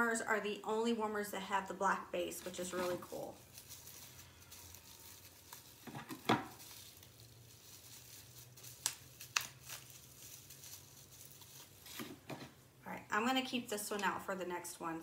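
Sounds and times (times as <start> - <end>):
plastic wrapping crinkling: 2.2 - 12.6.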